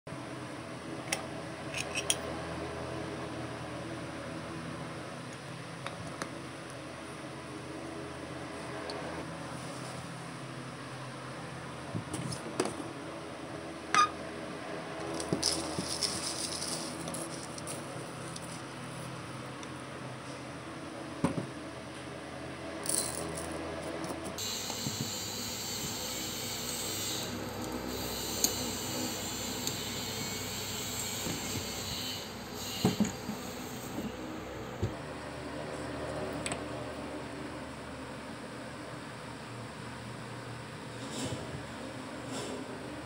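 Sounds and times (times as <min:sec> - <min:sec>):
seed mix rattling and rustling: 0:15.1 - 0:18.7.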